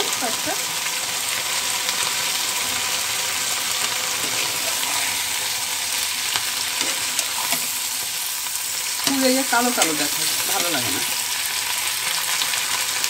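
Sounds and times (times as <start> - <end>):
vegetables sizzling in oil: 0.0 - 13.0
metal spatula scraping pan: 4.0 - 5.6, 6.2 - 11.2.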